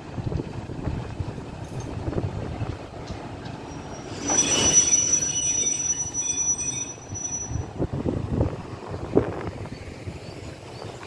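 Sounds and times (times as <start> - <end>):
low train rumble: 0.0 - 11.0
train wheels squealing: 3.1 - 7.8, 9.6 - 11.0.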